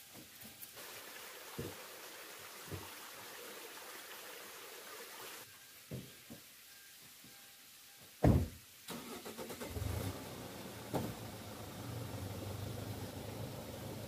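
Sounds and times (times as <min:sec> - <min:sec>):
van engine running: 0:09.5 - 0:14.0
car door shutting: 0:10.8 - 0:11.4.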